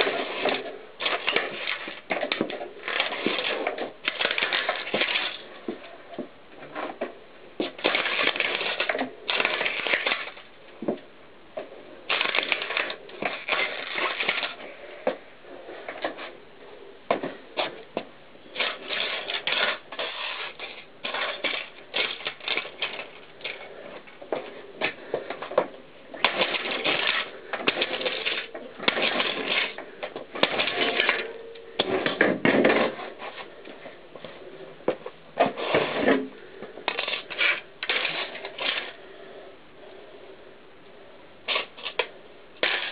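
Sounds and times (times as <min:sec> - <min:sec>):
plastic cassette cracking and crunching: 0:00.0 - 0:05.4, 0:07.8 - 0:10.5, 0:12.1 - 0:14.6, 0:26.2 - 0:29.8.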